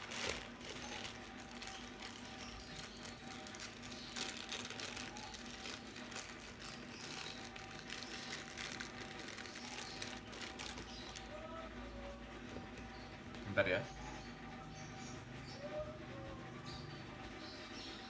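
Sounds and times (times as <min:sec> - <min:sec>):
plastic bags rustling: 0:00.0 - 0:11.4.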